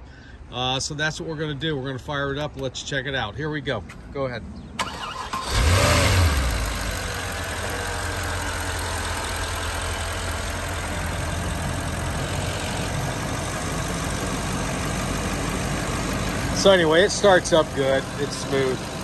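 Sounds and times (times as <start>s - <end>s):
car engine idling: 4.8s - 19.0s.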